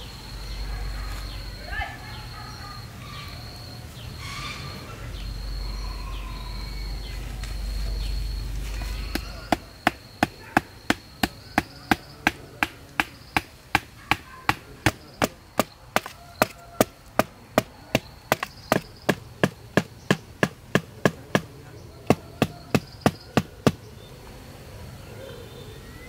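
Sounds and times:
machete chopping bamboo: 9.0s - 23.8s.

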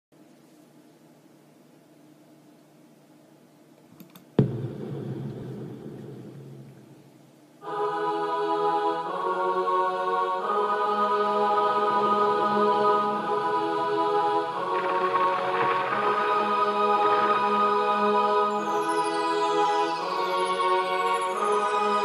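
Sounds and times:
choir-like chords: 4.4s - 22.0s
ringing hit: 14.6s - 20.0s.

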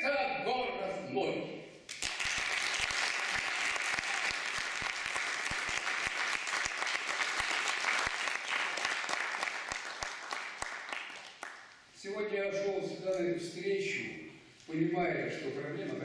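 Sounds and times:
audience applauding: 1.9s - 11.8s.

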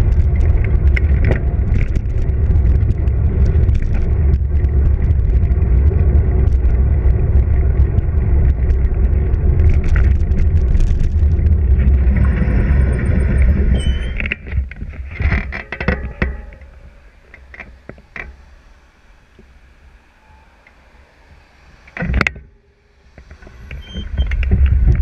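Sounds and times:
tyre rumble on asphalt: 0.0s - 18.4s
wind buffeting microphone: 0.0s - 25.0s
high brake squeal: 12.8s - 14.2s, 23.7s - 24.4s.

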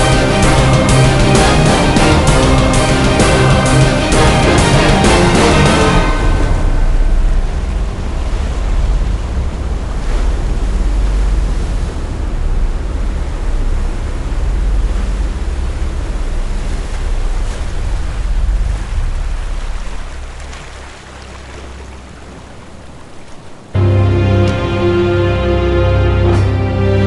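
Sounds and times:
steady low drone: 0.0s - 20.6s, 23.6s - 27.0s
surf-like rushing noise: 0.0s - 27.0s.

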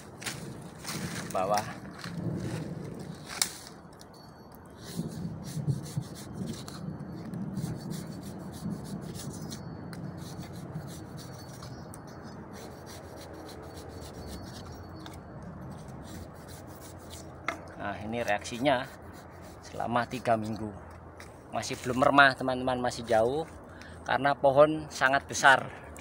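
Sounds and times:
machete scraping wood: 4.8s - 6.8s, 15.8s - 20.8s.

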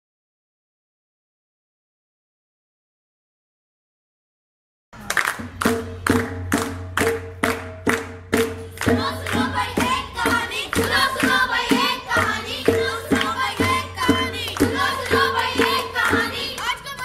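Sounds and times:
handclaps: 5.0s - 17.0s
barrel drum beat: 5.4s - 16.6s
children singing: 8.8s - 17.0s.

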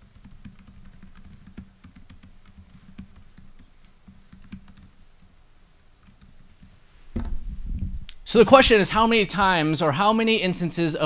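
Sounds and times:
laptop keyboard typing: 0.0s - 6.8s
low steady hum: 0.0s - 10.8s.

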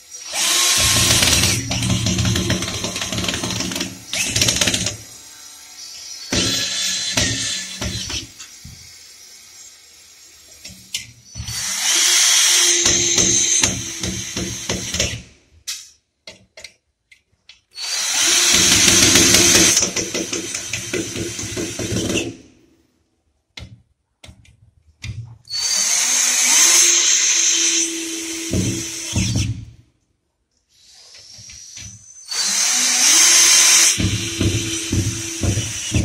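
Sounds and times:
cordless drill driving screws: 0.2s - 5.1s, 11.4s - 15.2s, 17.8s - 22.3s, 25.5s - 29.5s, 31.1s - 36.0s.

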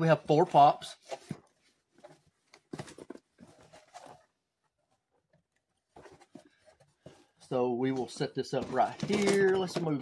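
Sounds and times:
cardboard box handling: 1.0s - 4.4s, 5.8s - 7.4s.

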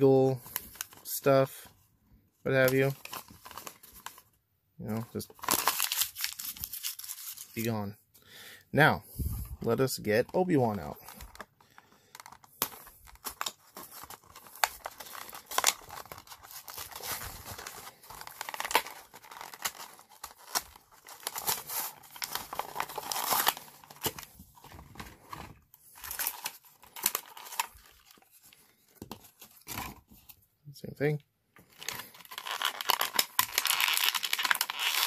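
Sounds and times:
plastic blister crinkling and tearing: 4.9s - 7.7s, 10.4s - 30.0s, 31.6s - 35.0s.

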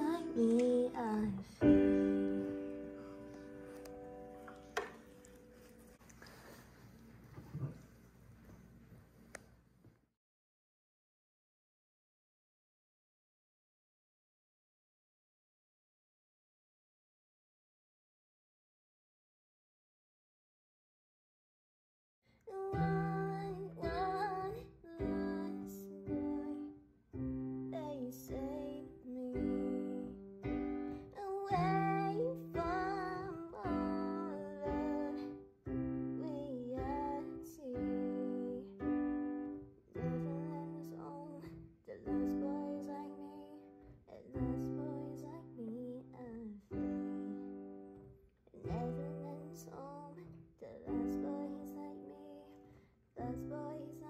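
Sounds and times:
girl singing: 0.0s - 3.0s, 22.5s - 26.8s, 27.6s - 39.4s, 40.0s - 48.0s, 48.6s - 54.0s
piano chords: 0.0s - 6.4s, 22.5s - 54.0s.

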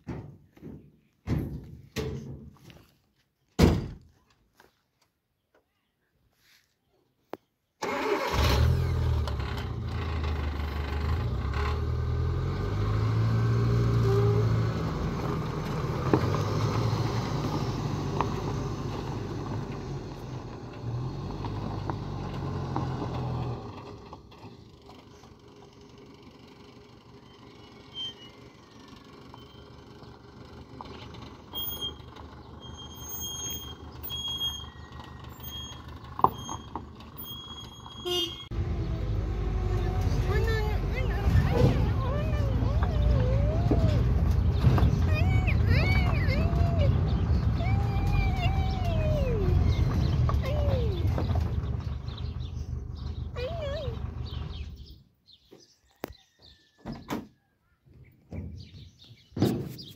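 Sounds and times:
petrol engine running: 7.8s - 54.9s.

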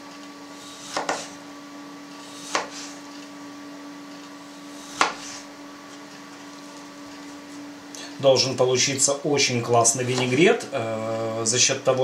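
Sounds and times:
steady hum: 0.0s - 12.0s.

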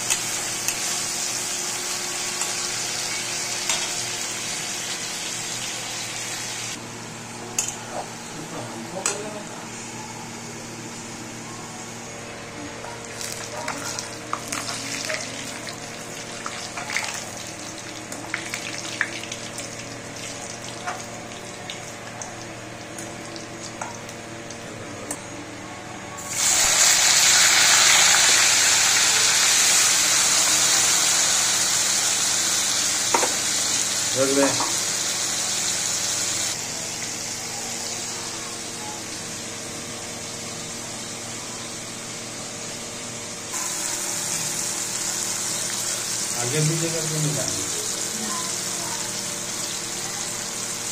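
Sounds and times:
vegetable slices frying in oil: 0.0s - 6.8s, 13.2s - 23.9s, 26.2s - 37.2s, 43.6s - 50.9s.

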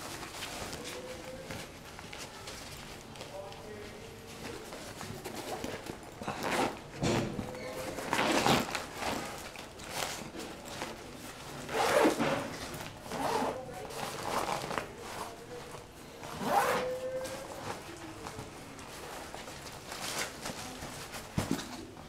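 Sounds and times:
zipper rasping: 6.3s - 6.8s, 8.0s - 9.2s, 11.7s - 12.3s, 13.1s - 13.6s, 16.3s - 17.1s
fabric rustling: 7.8s - 21.4s.

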